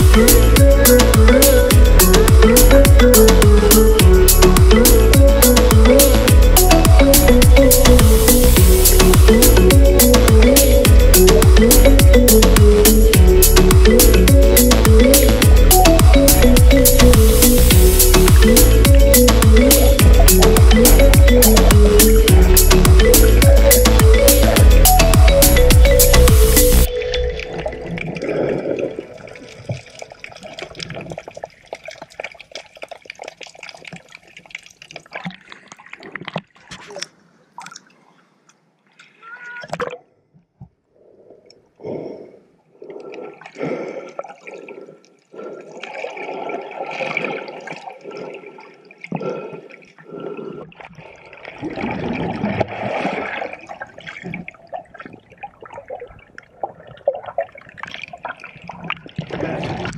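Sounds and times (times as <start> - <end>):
underwater water sloshing and bubbling: 26.9 - 59.9.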